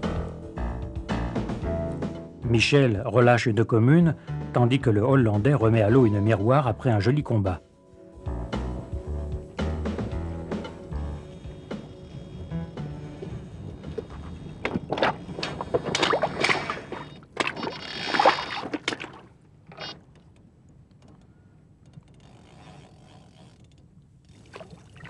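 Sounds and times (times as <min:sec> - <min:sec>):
water splashing: 0:14.6 - 0:20.0, 0:24.4 - 0:25.0.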